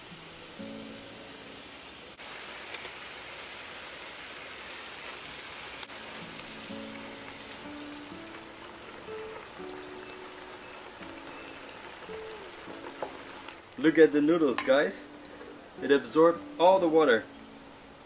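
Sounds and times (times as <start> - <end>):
background music with held notes: 0.0 - 2.2, 5.9 - 18.0
pork sizzling in a pan: 2.2 - 15.0.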